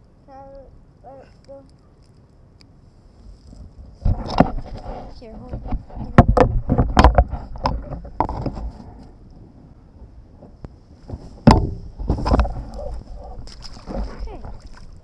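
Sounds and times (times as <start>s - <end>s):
wind rumble on microphone: 2.4s - 15.0s
knocks on camera microphone: 11.4s - 12.7s.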